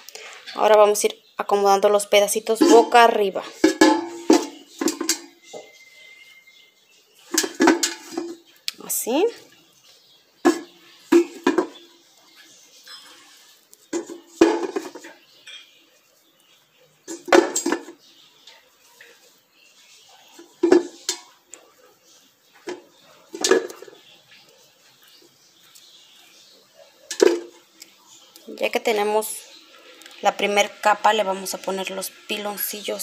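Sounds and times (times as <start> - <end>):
pumpkin pieces clinking in metal pot: 2.6 - 5.4.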